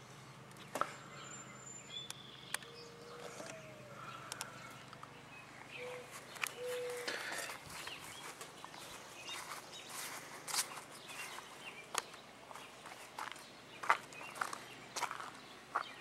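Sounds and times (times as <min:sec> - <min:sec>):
footsteps on gravel and grass: 0:05.8 - 0:16.0.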